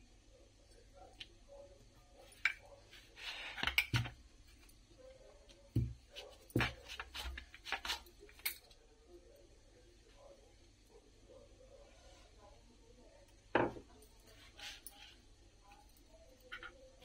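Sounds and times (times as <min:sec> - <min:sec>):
hands working dough: 0:01.1 - 0:08.7
rolling pin on marble board: 0:05.7 - 0:08.1.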